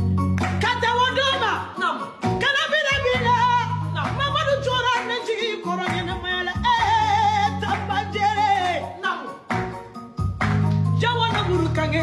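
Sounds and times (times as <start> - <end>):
backing track with bass line: 0.0 - 1.6, 9.5 - 12.0
woman singing: 0.6 - 9.4, 11.0 - 12.0.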